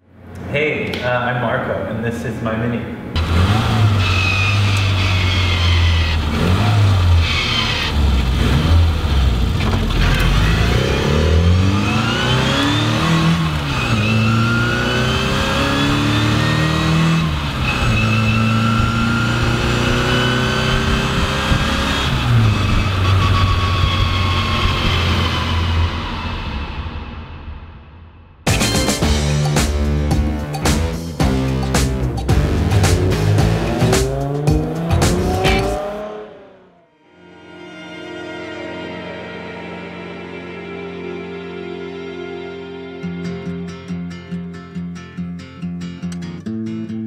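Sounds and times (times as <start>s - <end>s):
car engine revving through gears: 3.2s - 26.7s, 32.2s - 36.9s.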